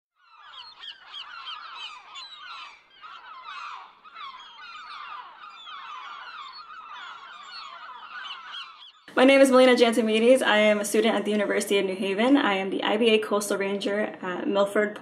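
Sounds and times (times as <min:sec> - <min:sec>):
flock of birds calling: 0:00.2 - 0:11.2.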